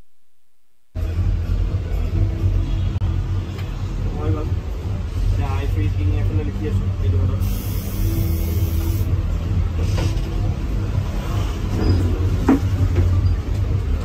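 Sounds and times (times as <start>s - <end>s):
brief squeak: 11.8s - 12.2s.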